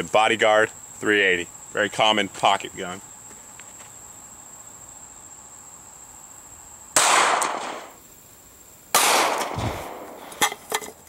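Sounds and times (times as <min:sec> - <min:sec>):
insects trilling: 0:00.0 - 0:11.0
pistol shots: 0:07.0 - 0:08.0, 0:08.9 - 0:10.5.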